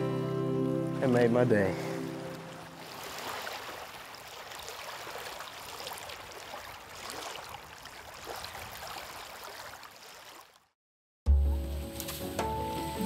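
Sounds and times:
small waves lapping on rocks: 1.5 - 10.6.

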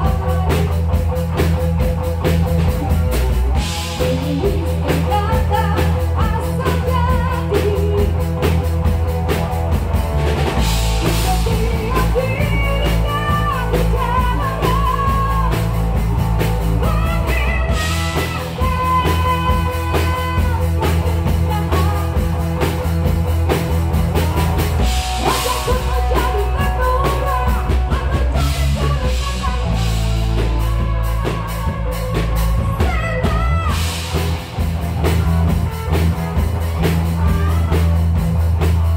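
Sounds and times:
person singing: 0.0 - 0.9, 3.8 - 8.4, 11.0 - 15.8, 16.6 - 22.4, 24.9 - 34.3
rock band playing live: 0.0 - 38.9.

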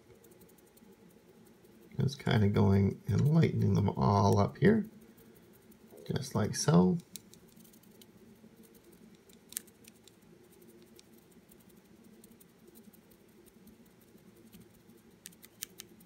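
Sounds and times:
brush scratching on plastic: 0.0 - 16.0
low steady hum: 0.0 - 16.0.

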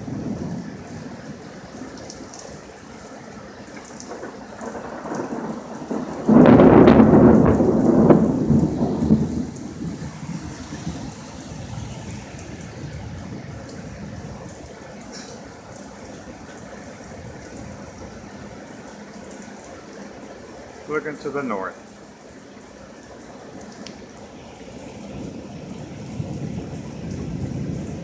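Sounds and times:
thunder rumbling: 0.0 - 2.8, 3.8 - 21.4, 24.1 - 28.0
loud thunder clap: 4.1 - 10.3.

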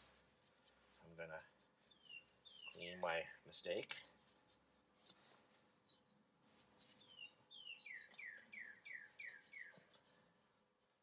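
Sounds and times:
songbird singing: 1.8 - 3.4, 6.8 - 10.1.

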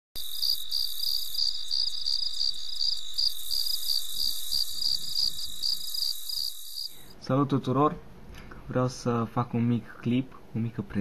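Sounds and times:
crickets chirping: 0.2 - 7.2.

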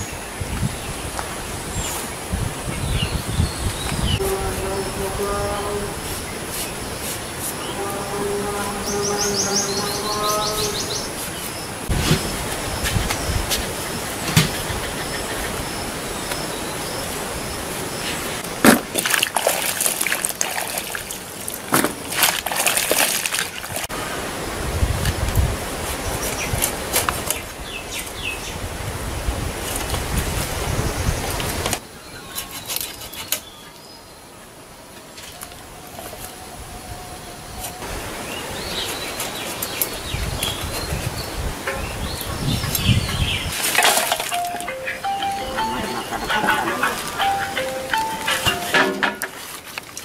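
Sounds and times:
small birds chirping: 0.0 - 18.4, 35.0 - 43.6, 44.3 - 48.8
gourd cubes clattering in metal bowl: 43.6 - 44.6.

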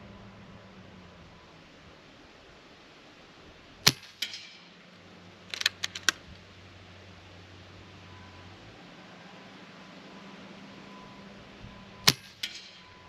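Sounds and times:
air rifle crack: 3.8 - 4.7, 5.5 - 6.3, 12.1 - 12.8
metallic clicks of rifle action: 3.9 - 4.6, 5.5 - 6.2.

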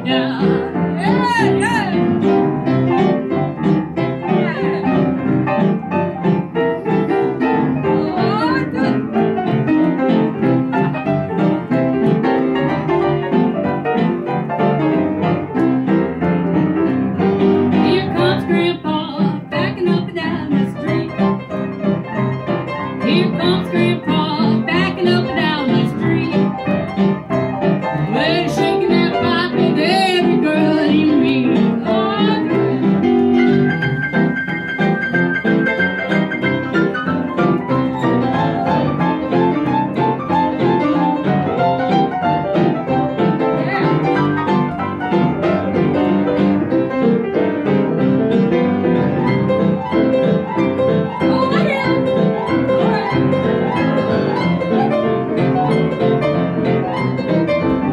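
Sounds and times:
upright piano playing: 0.0 - 57.9
woman singing into microphone: 17.8 - 21.2, 23.0 - 26.4, 28.1 - 32.8.

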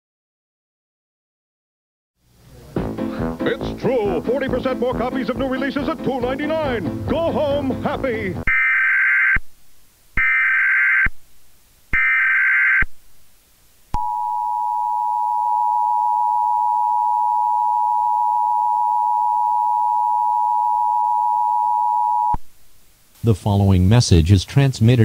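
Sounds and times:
data tone bursts: 8.5 - 9.4, 10.2 - 11.2, 11.9 - 12.9, 14.0 - 22.4
steady two-tone attention signal: 14.0 - 22.4.

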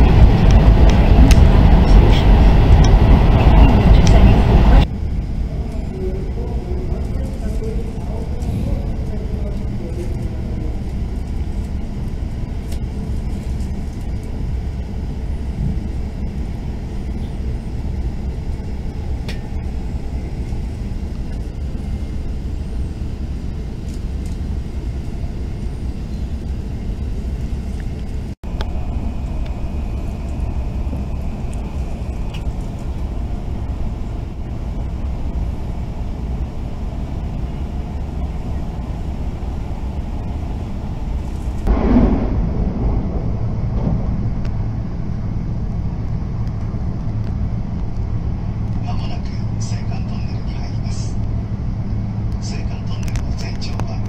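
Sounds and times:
train cabin rumble: 0.0 - 54.0.

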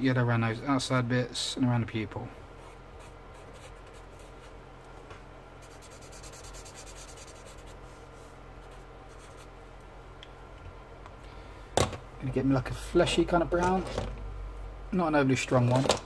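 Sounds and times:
marker nib rubbing on paper: 2.7 - 4.5, 5.6 - 7.8, 8.6 - 9.5.

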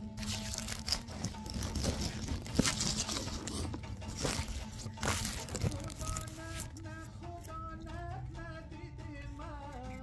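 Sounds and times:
crunchy chewing of stalks: 0.0 - 6.8.

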